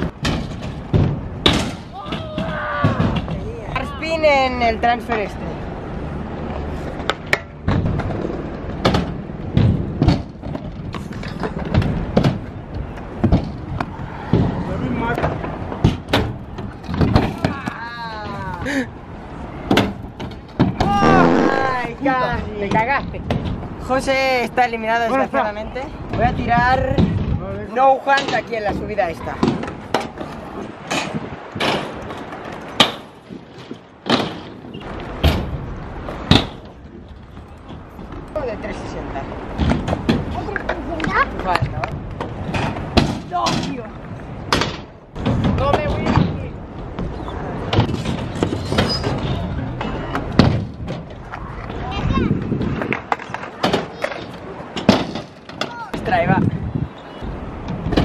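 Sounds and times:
scooter wheels rolling on concrete: 0.0 - 58.0
wheels rolling on concrete: 4.8 - 17.6, 43.7 - 58.0.

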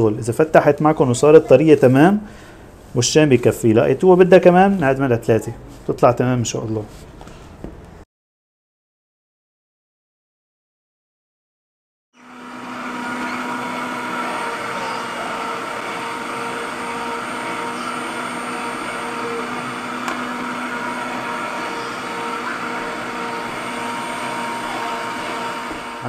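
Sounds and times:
meat grinder motor humming: 12.2 - 26.0.

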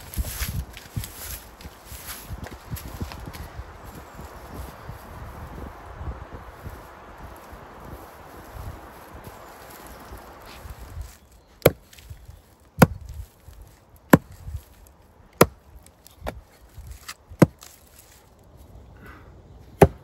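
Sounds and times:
hatchet chopping broom bristles: 15.4 - 18.2.

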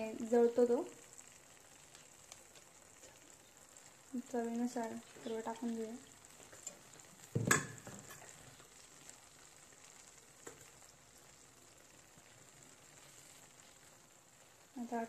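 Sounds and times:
sauce sizzling: 0.0 - 15.0
metal spoon clunking on pan: 7.4 - 8.2.

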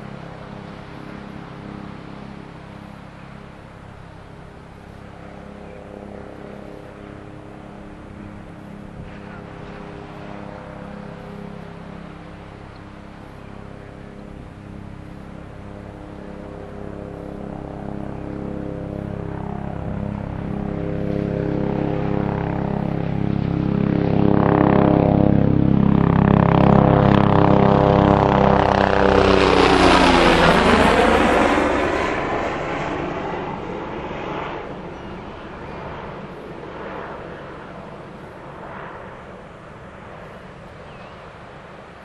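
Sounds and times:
propeller airplane engine drone: 0.0 - 42.0.

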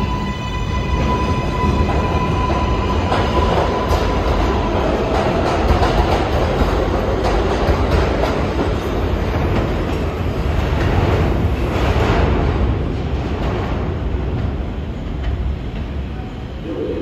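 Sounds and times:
subway train rumbling and rattling: 0.0 - 17.0
steady high tone: 16.6 - 17.0.

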